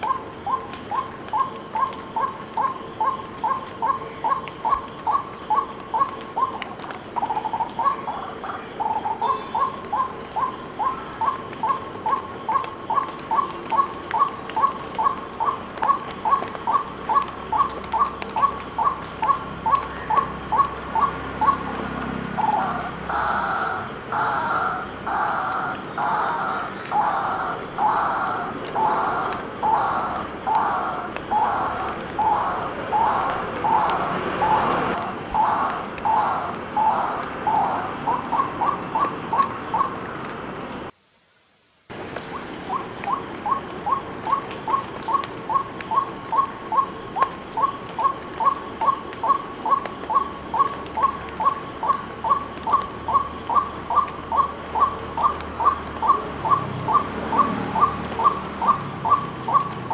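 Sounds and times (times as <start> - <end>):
waterhen calling harsh notes: 10.4 - 40.0.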